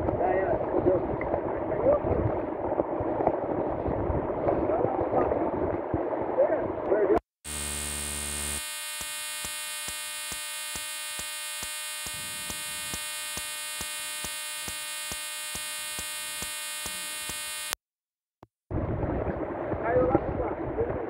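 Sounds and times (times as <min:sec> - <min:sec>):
electronic buzz: 0:07.4 - 0:17.8.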